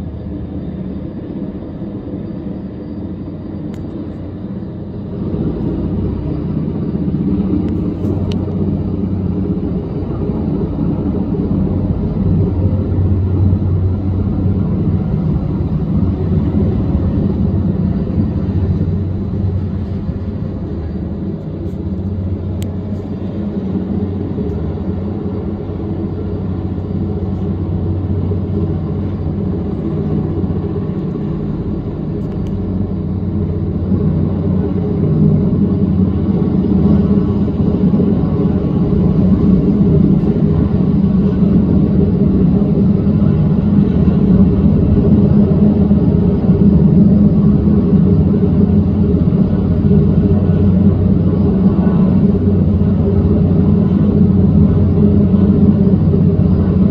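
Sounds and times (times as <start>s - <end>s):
helicopter rotor and engine rumble: 0.0s - 56.9s.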